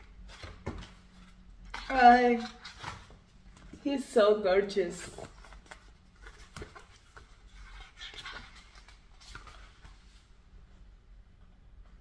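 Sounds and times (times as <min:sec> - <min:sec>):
paper rustling: 0:04.9 - 0:10.3.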